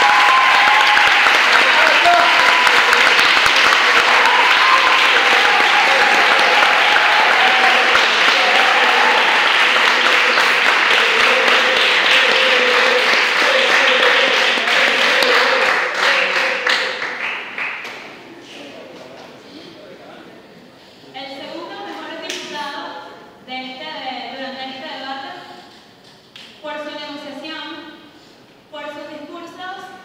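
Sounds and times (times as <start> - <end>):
audience applauding: 0.0 - 18.2
voices: 1.4 - 17.1.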